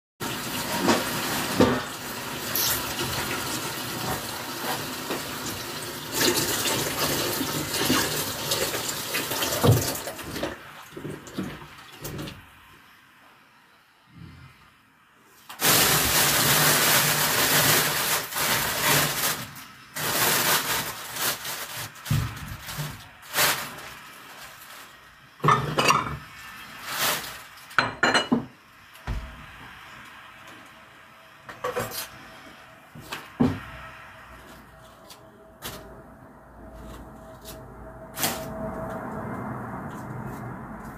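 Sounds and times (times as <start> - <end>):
water running from tap into sink: 0.2 - 10.5.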